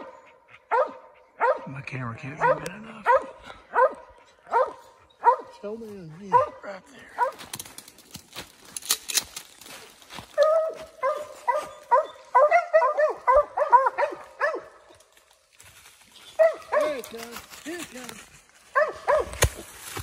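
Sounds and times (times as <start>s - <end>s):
dog barking rapidly: 0.0s - 5.6s, 6.3s - 7.4s, 10.4s - 14.8s, 16.4s - 17.0s, 18.8s - 19.4s
dry leaves crunching underfoot: 7.2s - 12.0s, 15.0s - 20.0s.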